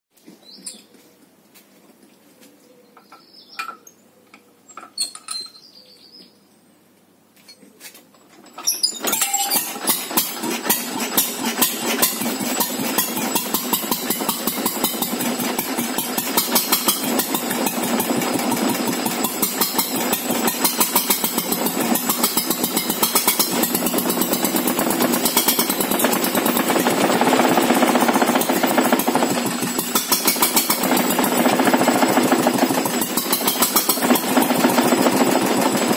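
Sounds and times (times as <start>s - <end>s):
stationary engine running: 9.0s - 35.9s.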